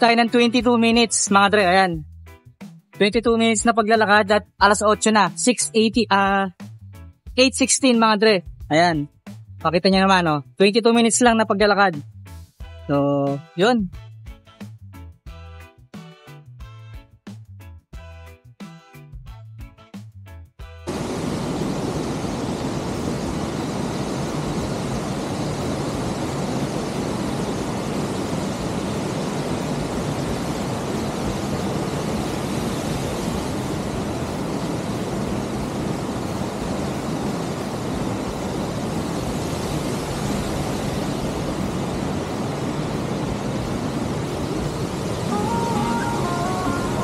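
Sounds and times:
waterfall rushing: 20.9 - 47.0.

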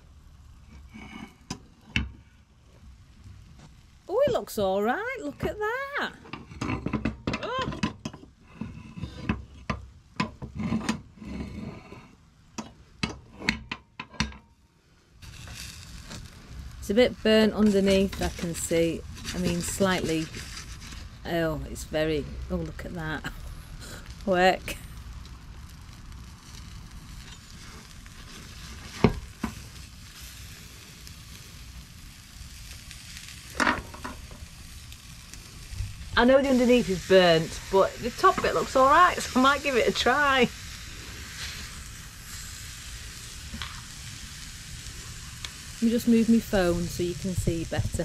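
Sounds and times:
food sizzling: 0.0 - 13.8, 15.2 - 48.0
faint steady hiss: 0.0 - 48.0
cast iron cooker clanking: 6.3 - 8.2
spoon scraping cast iron: 17.6 - 21.1.

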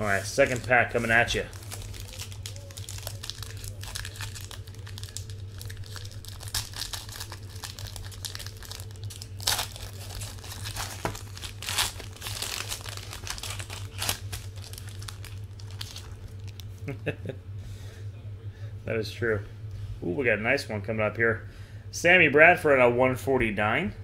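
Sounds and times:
wrapper crinkling and tearing: 0.0 - 16.9.

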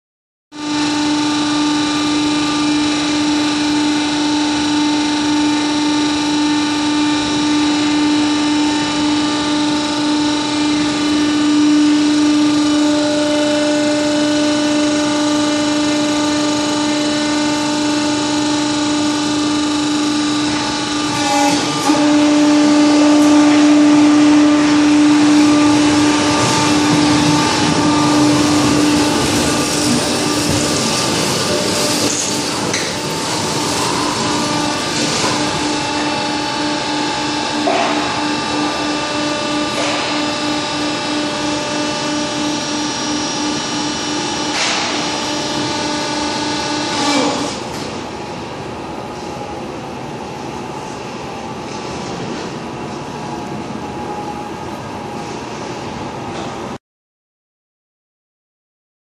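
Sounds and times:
hydraulic machinery humming: 0.5 - 56.8
machinery knock: 24.5 - 36.3.

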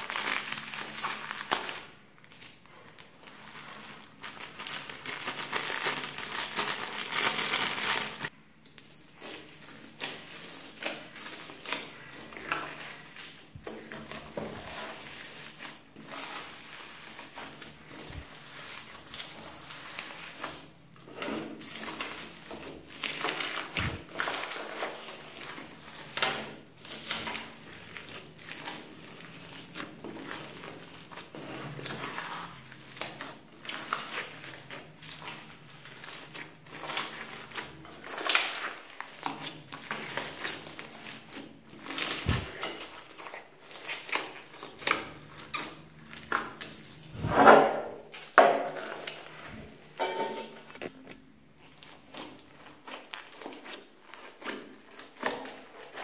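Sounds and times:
slime squelching: 0.0 - 56.0
foam beads crackling: 2.8 - 8.3.

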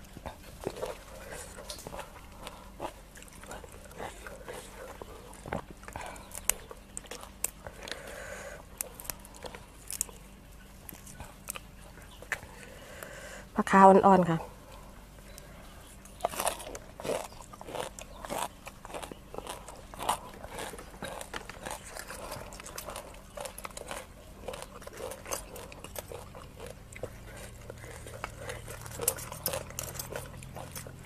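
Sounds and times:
chewing and crunching: 0.0 - 31.0
metal cutlery clicking and scraping: 28.8 - 31.0.

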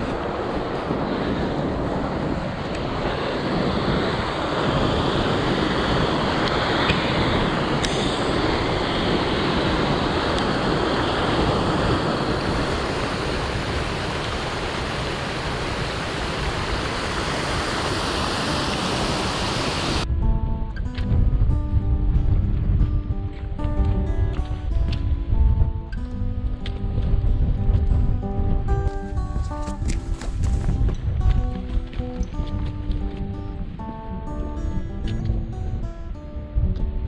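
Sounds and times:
stream cascading over rocks: 0.0 - 20.1
wind buffeting microphone: 0.0 - 37.0.

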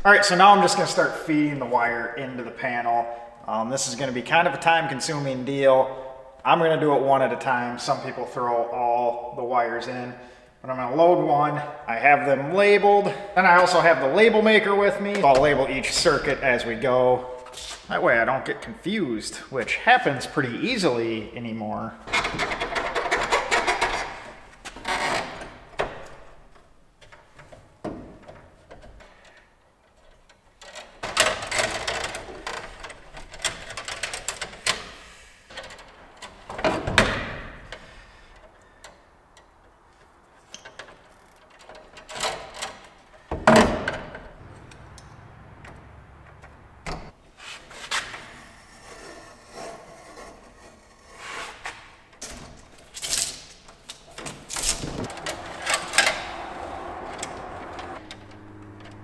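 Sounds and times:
cable rustling and scraping: 47.3 - 59.0.

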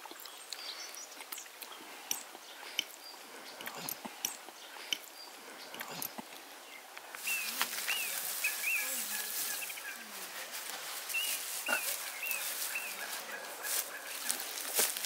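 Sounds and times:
dry straw rustling and crackling: 7.1 - 15.0.

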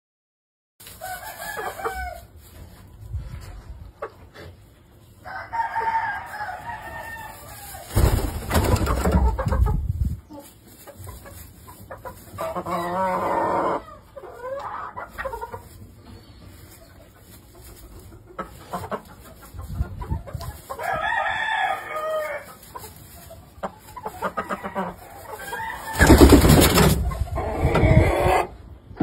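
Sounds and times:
loud rustling: 25.8 - 27.2.

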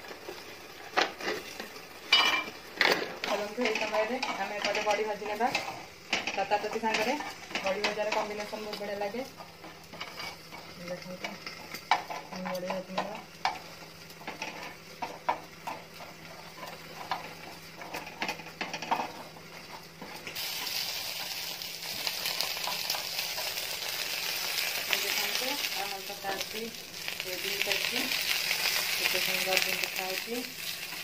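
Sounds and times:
light sizzle: 0.0 - 31.0
vegetables sizzling in oil: 0.0 - 31.0
spatula scraping frying pan: 9.9 - 10.7.

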